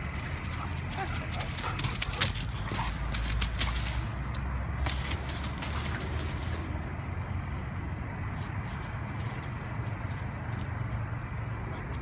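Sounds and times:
dry leaves rustling and crunching: 0.4 - 6.8.

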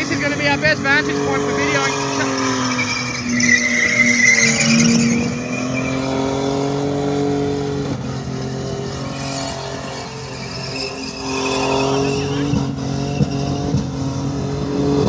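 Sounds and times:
tyres squealing: 0.0 - 6.8, 8.8 - 13.8
car engine at high revs: 0.0 - 15.0.

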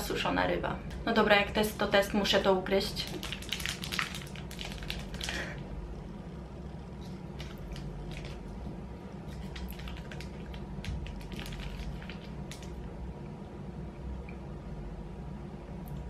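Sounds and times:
chewing crunchy snack: 3.1 - 5.6, 7.0 - 12.8.

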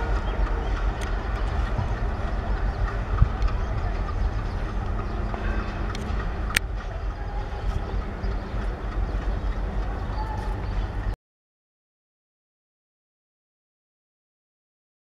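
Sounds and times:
diesel locomotive engine rumble: 0.0 - 11.2.

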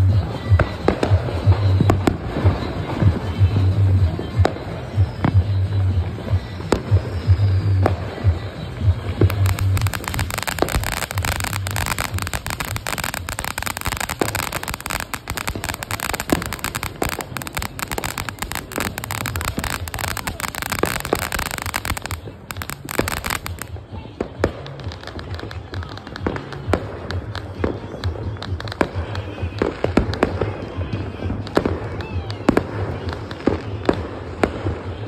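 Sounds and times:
firework fountain crackling: 0.0 - 35.0
fireworks banging: 9.2 - 23.8.

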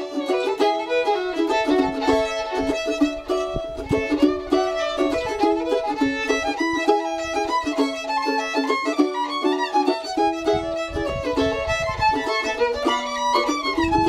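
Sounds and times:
bowed fiddle melody: 0.0 - 14.0
picked mandolin notes: 0.0 - 14.0.

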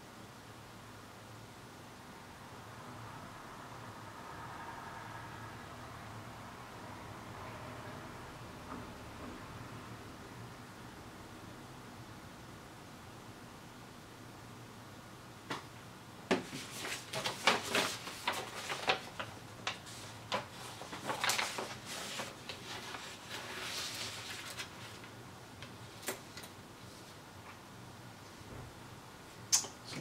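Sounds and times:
paper rustling: 16.3 - 27.6.

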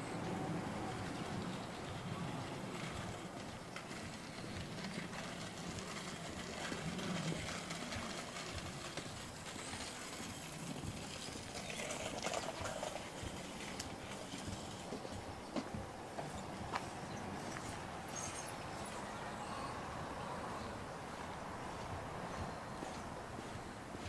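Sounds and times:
distant traffic: 0.0 - 24.0
footsteps on pavement: 1.1 - 19.3, 20.0 - 24.0.

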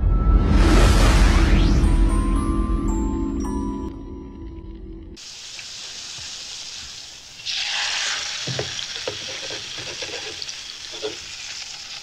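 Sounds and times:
fat sizzling in a frying pan: 5.2 - 12.0.

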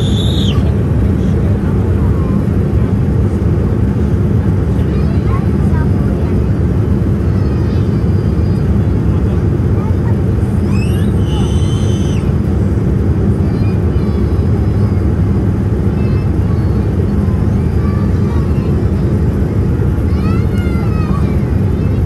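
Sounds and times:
faint high chirping calls: 0.0 - 0.6
loud low rumble: 0.0 - 22.0.

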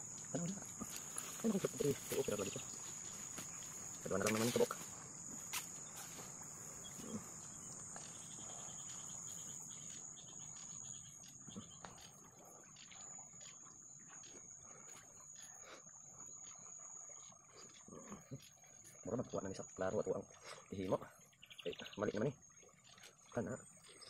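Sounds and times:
high-pitched insect buzz: 0.0 - 23.1.

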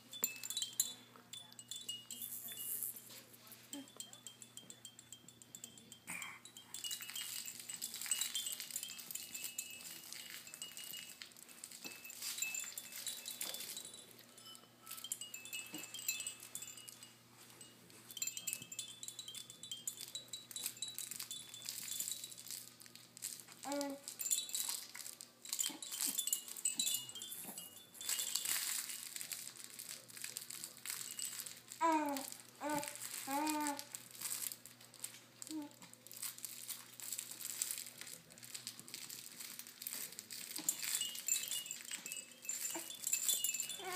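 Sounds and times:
plush toys jingling and rattling: 0.0 - 43.9
small chimes ringing: 0.0 - 43.9
baby cooing: 23.6 - 24.1, 31.8 - 33.9.

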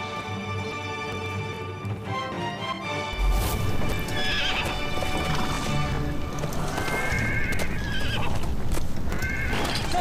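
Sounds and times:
dramatic orchestral music: 0.0 - 8.0
horse hoofbeats: 0.0 - 10.0
horse whinnying: 3.9 - 10.0.

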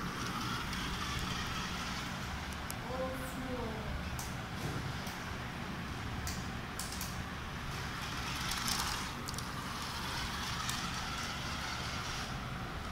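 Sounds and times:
toy car motor whirring: 0.0 - 2.6, 7.8 - 12.9
sharp clicks: 6.2 - 7.2.

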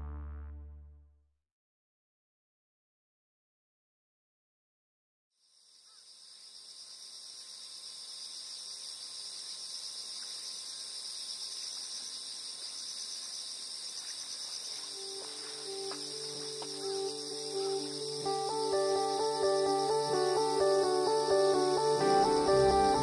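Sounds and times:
insects trilling: 5.4 - 23.0
soft sustained music notes: 14.8 - 23.0.

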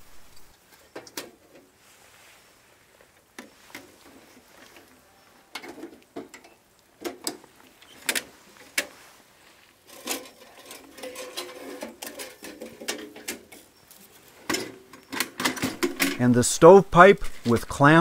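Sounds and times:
metal sliding and scraping: 7.2 - 18.0.

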